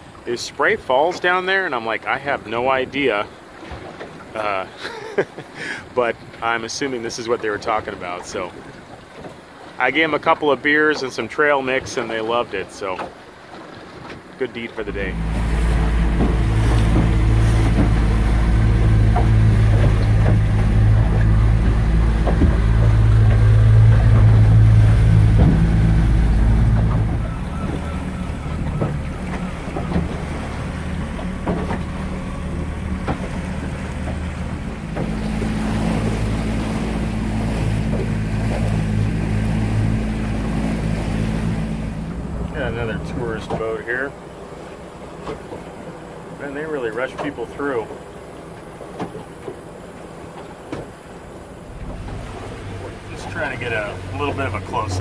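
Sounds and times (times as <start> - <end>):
outboard motor humming: 0.0 - 55.0
small knocks: 16.1 - 18.1, 18.9 - 24.4, 25.3 - 25.7.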